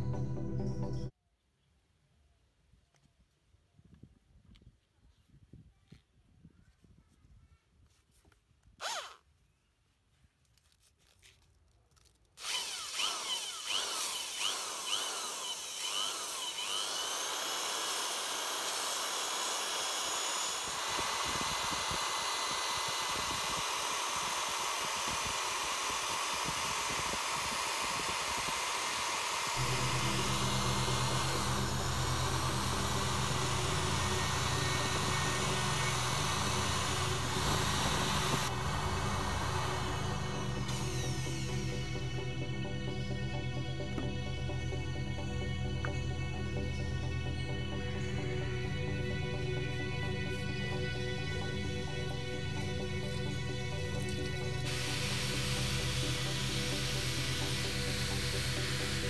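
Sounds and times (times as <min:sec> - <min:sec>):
electric drill motor whine: 0:08.8 - 0:09.2, 0:12.4 - 0:59.0
sandpaper rubbing hiss: 0:54.7 - 0:59.0.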